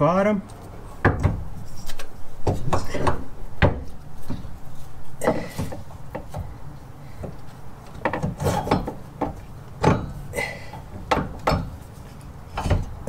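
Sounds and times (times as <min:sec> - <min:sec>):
axle knocking and scraping: 0:01.0 - 0:04.6, 0:05.2 - 0:06.6, 0:07.2 - 0:10.3, 0:10.9 - 0:13.0.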